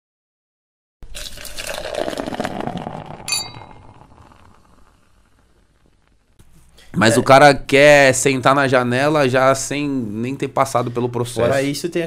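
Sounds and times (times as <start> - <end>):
beer pouring into glass: 1.0 - 5.7
glass mugs clinking: 3.3 - 4.0.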